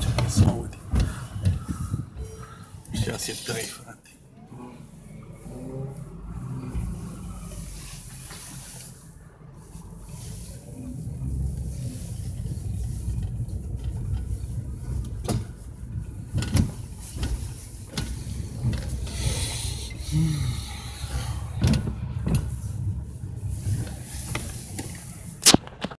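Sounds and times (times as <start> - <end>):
car engine idling: 0.0 - 25.5
sharp clicks and knocks: 15.0 - 19.2.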